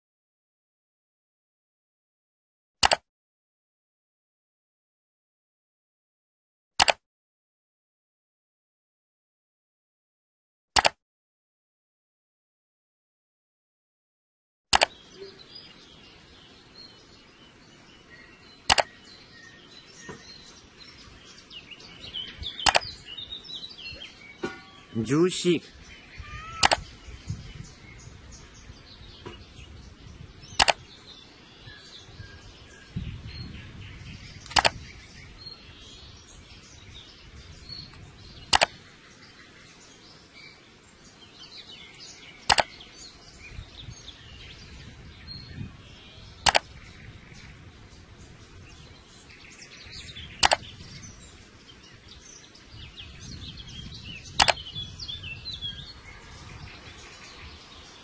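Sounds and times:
sharp click: 2.8s - 3.0s, 6.8s - 7.0s, 10.8s - 11.0s, 14.7s - 15.0s, 18.7s - 18.9s, 22.6s - 22.9s, 26.6s - 26.9s, 30.6s - 30.8s, 34.4s - 34.8s, 37.9s - 38.8s, 42.4s - 42.8s, 46.4s - 46.7s, 50.4s - 50.7s, 54.3s - 54.6s
outdoor background noise: 14.7s - 58.0s
faint bird chirping: 14.8s - 58.0s.

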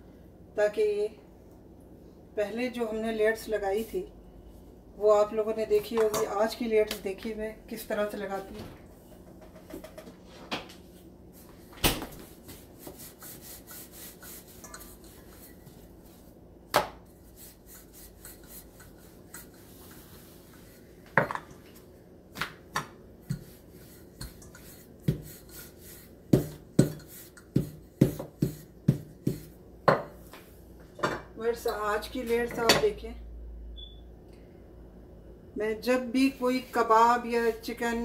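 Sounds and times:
rolling pin rolling dough: 11.4s - 30.0s.

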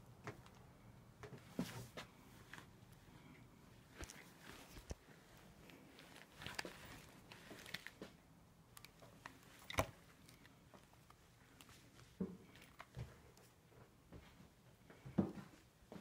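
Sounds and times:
phone handling clicks and rustles: 3.9s - 5.0s.

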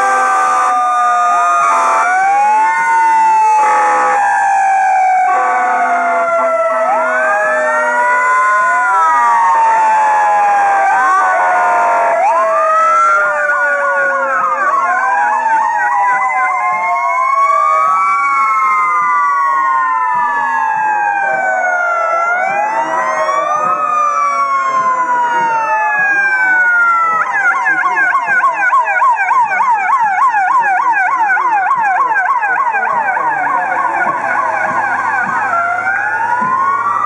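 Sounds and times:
fire truck sirens wailing: 0.0s - 37.0s
siren yelping warbles: 0.0s - 37.0s.

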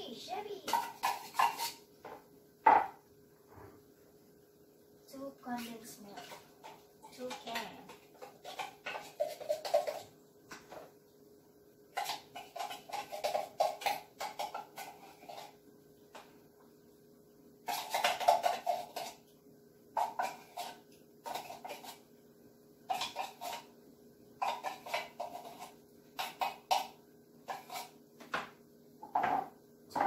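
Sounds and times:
knocks and scrapes on metal cans: 0.6s - 3.0s, 6.0s - 10.9s, 11.9s - 15.6s, 17.6s - 19.2s, 20.0s - 22.0s, 24.4s - 30.0s.

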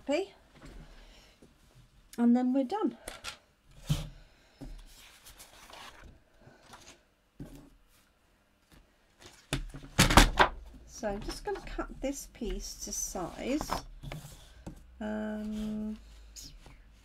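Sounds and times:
paper rustling on a tabletop: 4.9s - 8.1s.

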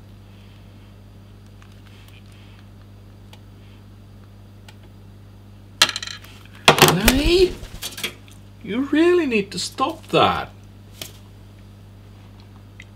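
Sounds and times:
steady low hum: 6.4s - 12.9s.

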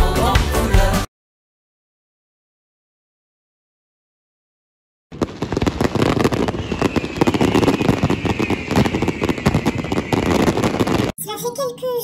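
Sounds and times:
fireworks bangs and crackles: 5.1s - 11.2s
falling firework whistle: 5.2s - 11.1s.

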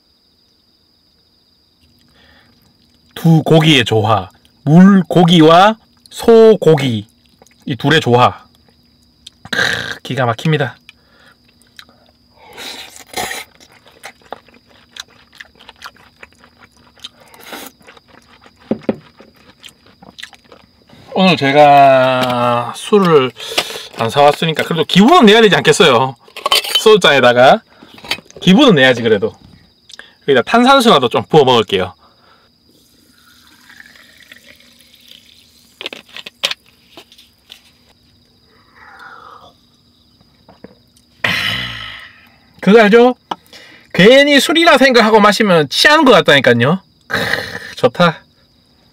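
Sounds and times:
person chewing wet food: 10.8s - 21.1s
wet mouth clicks and crunches: 12.9s - 20.7s, 34.8s - 37.1s
glass clinking: 26.4s - 26.9s
sparkling water pouring into glass: 32.8s - 35.8s.

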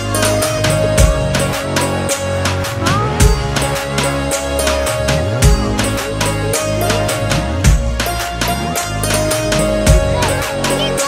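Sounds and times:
background music with steady beat: 0.0s - 11.0s
deep bass hits: 2.6s - 10.6s.

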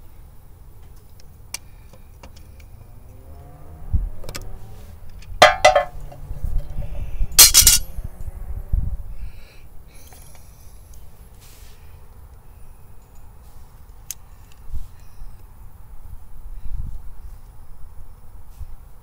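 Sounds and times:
metal clinks and clatter: 5.4s - 6.2s, 7.4s - 7.9s
pliers prying metal cap: 7.4s - 7.8s.

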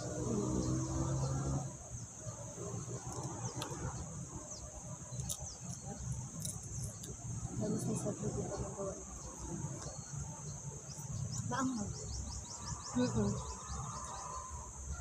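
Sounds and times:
insects droning: 0.0s - 15.0s
bird chirps: 9.1s - 14.6s.

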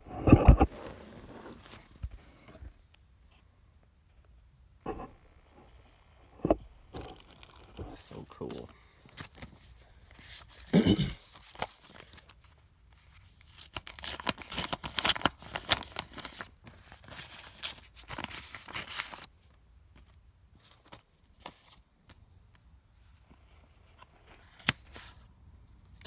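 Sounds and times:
paper envelope tearing and rustling: 7.1s - 19.4s.

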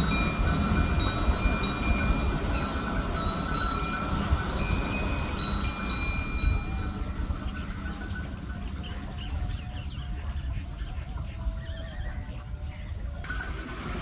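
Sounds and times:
ringing metallic tones: 0.0s - 9.9s, 13.2s - 14.0s
steady low rumble: 0.0s - 13.2s.

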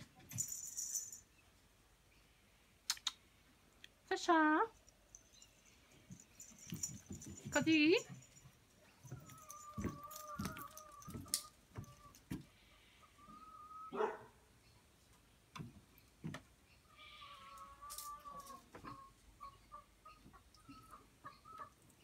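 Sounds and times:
hens clucking: 9.1s - 14.0s, 17.2s - 22.0s.

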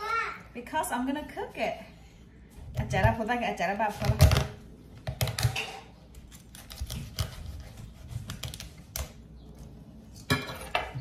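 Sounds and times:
knife crunching through crab shells: 6.3s - 9.2s.

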